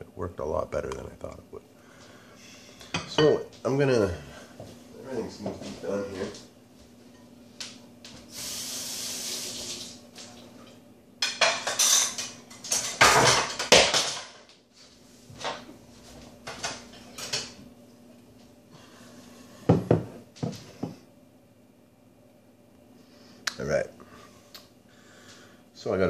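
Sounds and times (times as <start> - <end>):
faint steady hum: 0.0 - 26.0
steady hiss: 8.1 - 10.3
plates pans and cutlery clattering: 11.2 - 14.4.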